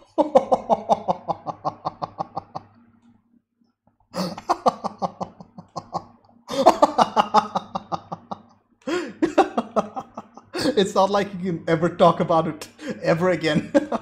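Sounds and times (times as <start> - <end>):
man laughing hard: 0.0 - 2.8, 4.2 - 10.8, 12.8 - 14.0.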